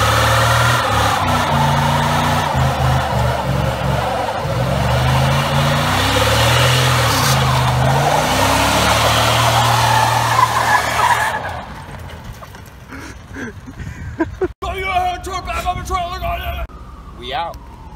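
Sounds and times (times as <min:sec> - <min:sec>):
truck engine revving: 0:00.0 - 0:12.5
spinning tyre screeching: 0:00.0 - 0:13.3.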